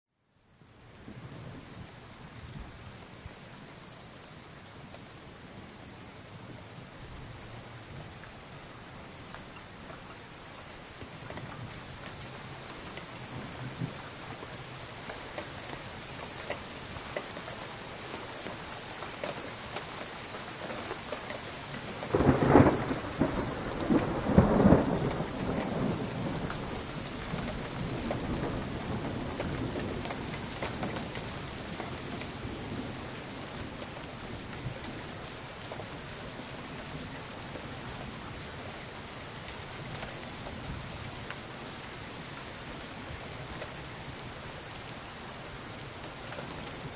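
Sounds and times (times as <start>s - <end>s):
steady rain: 0.1s - 46.9s
thunder cracks and rumble: 22.0s - 35.1s.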